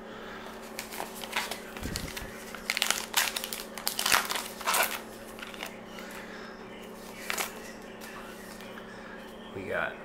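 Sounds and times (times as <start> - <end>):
faint rustling of cards: 0.5 - 6.3, 6.9 - 8.8
card pack wrapper tearing and crinkling: 0.6 - 5.8, 7.0 - 8.6.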